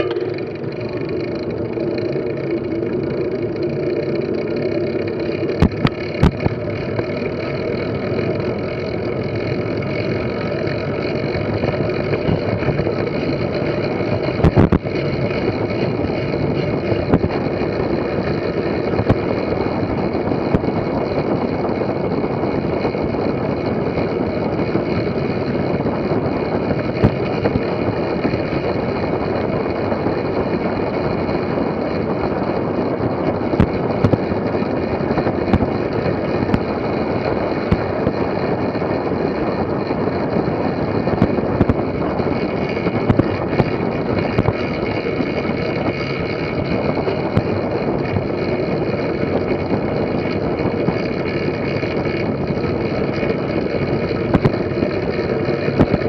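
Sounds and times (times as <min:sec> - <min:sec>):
tyres humming on wooden boards: 0:00.0 - 0:56.0
wind rushing on microphone: 0:00.0 - 0:56.0.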